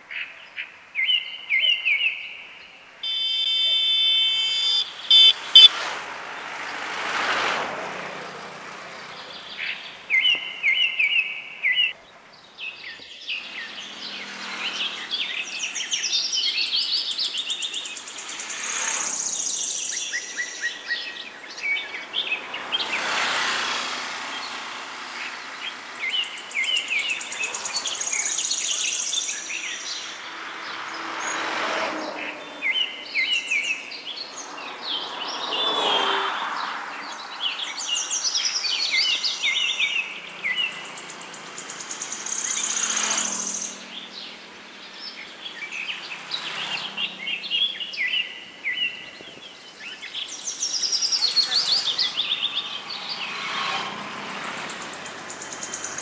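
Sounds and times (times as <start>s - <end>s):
small birds chirping and singing: 0.0s - 3.7s, 8.9s - 31.5s, 32.2s - 56.0s
rushing outdoor noise: 2.8s - 56.0s
high bird trill: 3.0s - 5.7s.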